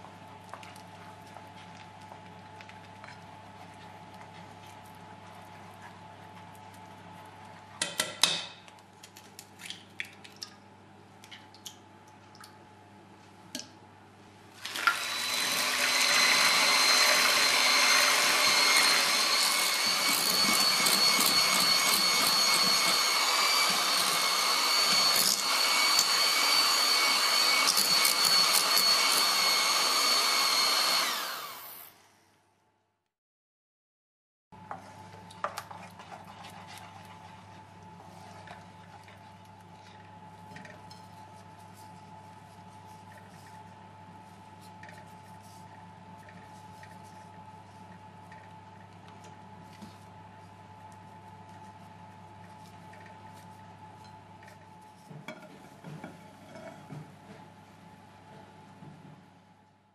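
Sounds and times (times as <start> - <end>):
electric mixer whining: 14.6 - 32.1.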